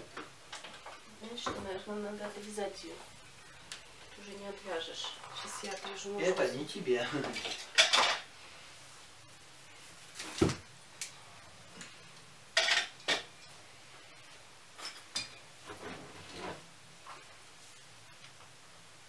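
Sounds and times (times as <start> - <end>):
rustling: 0.0 - 12.2.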